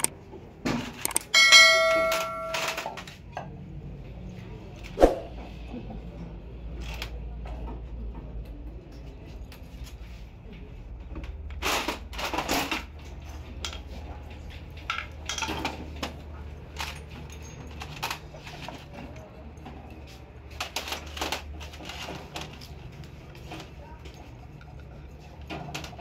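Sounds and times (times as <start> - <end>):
metal engine parts clinking: 1.0 - 3.1, 14.7 - 19.9.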